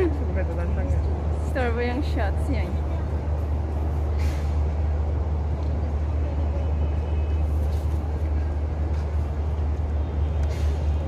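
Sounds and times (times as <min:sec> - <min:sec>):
city traffic rumble: 0:00.0 - 0:11.0.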